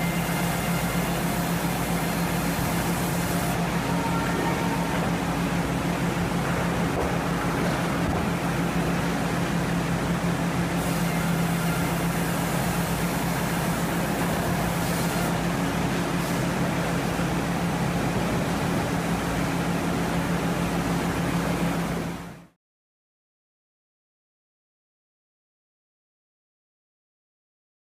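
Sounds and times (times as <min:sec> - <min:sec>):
resaw machine hum: 0:00.0 - 0:20.0.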